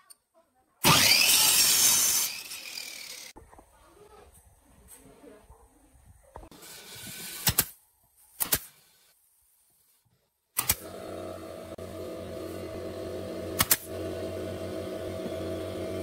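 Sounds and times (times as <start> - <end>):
nail gun shots: 7.4 - 7.8, 8.4 - 8.8, 10.6 - 10.8, 13.6 - 13.9
machine hum: 10.8 - 16.0.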